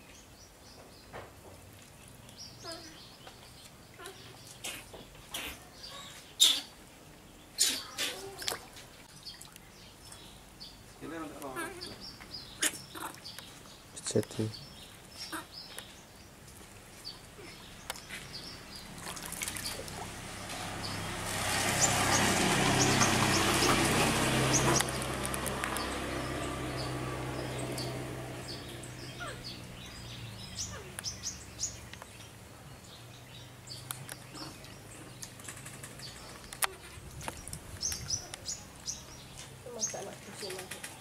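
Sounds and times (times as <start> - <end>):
water splashing in plastic tub: 17.9 - 27.4.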